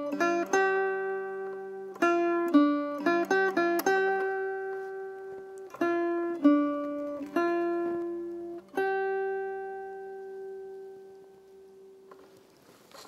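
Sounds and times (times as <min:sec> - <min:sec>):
acoustic guitar fingerpicked: 0:00.0 - 0:13.0.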